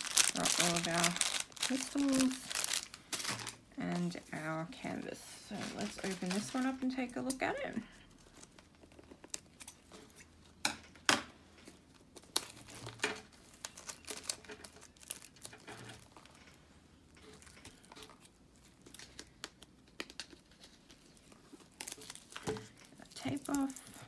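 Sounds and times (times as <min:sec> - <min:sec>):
sharp paper crackles: 0:00.0 - 0:04.1, 0:05.6 - 0:06.8, 0:12.1 - 0:16.3, 0:17.7 - 0:24.0
paper rustling and crinkling: 0:00.0 - 0:07.1, 0:11.6 - 0:16.5, 0:17.2 - 0:24.0.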